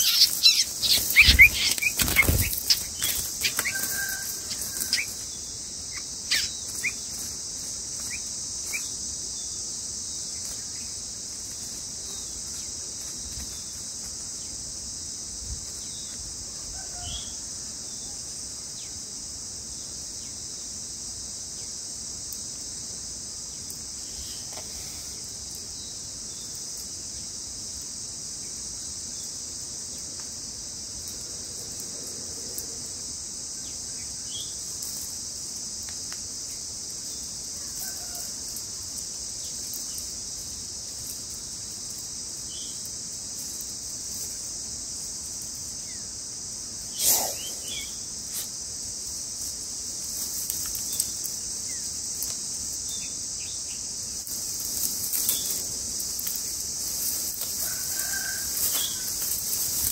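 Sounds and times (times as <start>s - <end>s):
bird chirps: 0.0s - 3.8s
insects droning: 0.0s - 59.9s.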